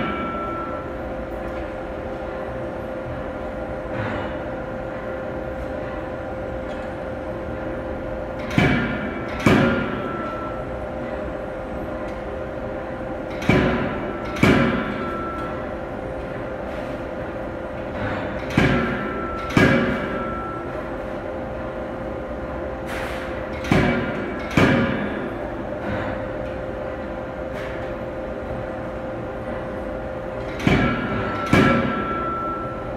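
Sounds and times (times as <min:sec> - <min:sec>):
steady machine hum: 0:00.0 - 0:32.9
forging hammer striking hot steel: 0:08.4 - 0:10.6, 0:13.3 - 0:15.4, 0:18.4 - 0:20.6, 0:30.6 - 0:32.8.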